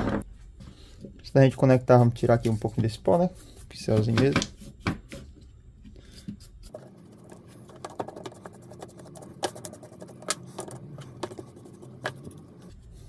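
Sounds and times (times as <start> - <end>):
paintbrush scrubbing plastic housing: 6.2 - 12.8.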